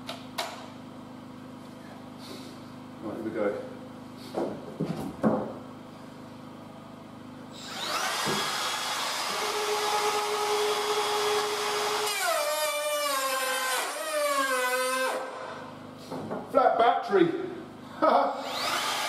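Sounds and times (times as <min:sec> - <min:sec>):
router whining and cutting wood: 0:07.5 - 0:15.6, 0:18.4 - 0:19.0.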